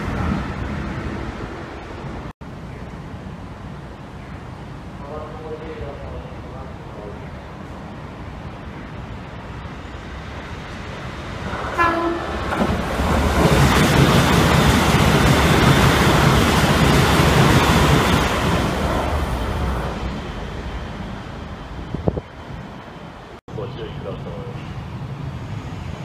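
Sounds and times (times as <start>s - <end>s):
train horn blast: 11.7s - 12.4s.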